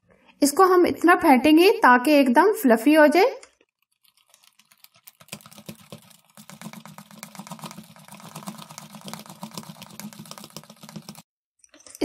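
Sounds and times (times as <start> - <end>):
whisk clicking in plastic bowl: 4.1 - 11.3.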